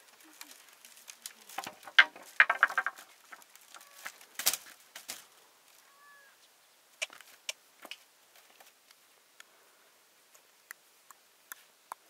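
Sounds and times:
sharp clicks and knocks: 0:01.6 - 0:03.4.

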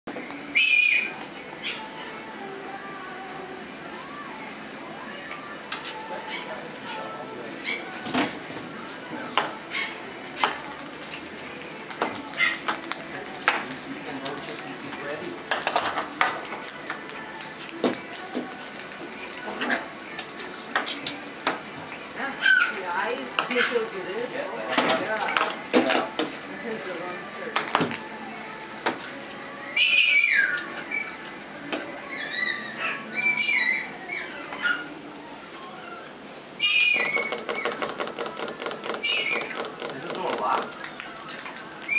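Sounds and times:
puppies yipping and whining: 0:00.4 - 0:02.2, 0:05.0 - 0:13.4, 0:21.9 - 0:24.4, 0:28.4 - 0:31.4, 0:32.0 - 0:38.0, 0:38.9 - 0:41.9
puppy claws clicking on floor: 0:09.1 - 0:30.7, 0:36.8 - 0:41.9
high squeak: 0:36.6 - 0:41.2.

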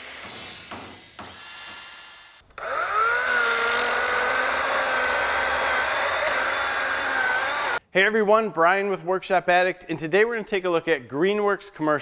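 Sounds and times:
chainsaw cutting log: 0:02.6 - 0:07.8.

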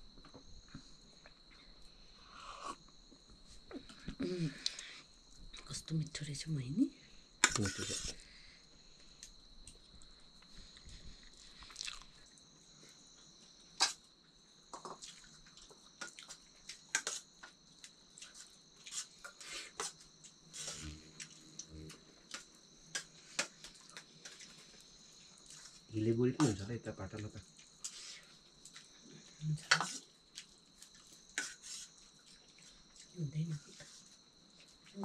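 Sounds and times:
high-pitched insect chorus: 0:00.0 - 0:35.0
people chewing and crunching: 0:09.0 - 0:13.0, 0:13.8 - 0:26.6, 0:27.4 - 0:35.0.

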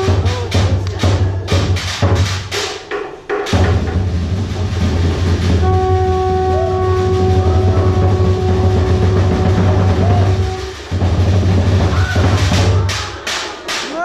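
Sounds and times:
low drum rumble: 0:03.6 - 0:12.9
steady horn-like note: 0:05.6 - 0:12.0.

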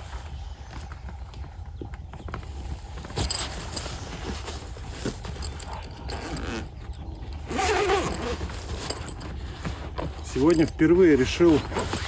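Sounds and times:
buckle clicks and jingles: 0:03.0 - 0:12.0.

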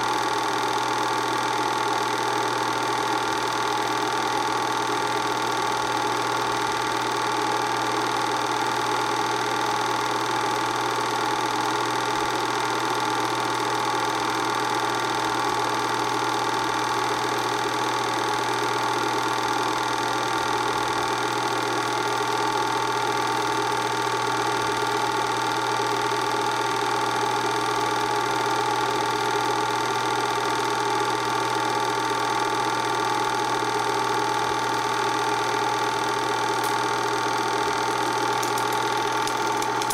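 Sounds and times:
film projector motor hum: 0:00.0 - 0:39.9
projector mechanical clatter: 0:00.0 - 0:39.9.

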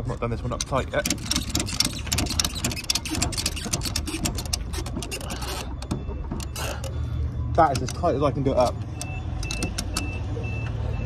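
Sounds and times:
ratchet strap clicking: 0:00.5 - 0:05.7.

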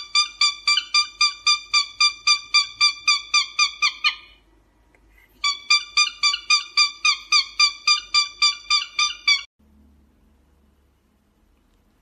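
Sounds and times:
cockatiel calling: 0:00.0 - 0:04.4, 0:05.4 - 0:09.5.

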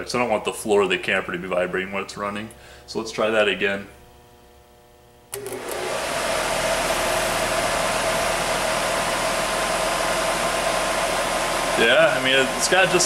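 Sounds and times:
furnace blower running: 0:05.3 - 0:13.0.

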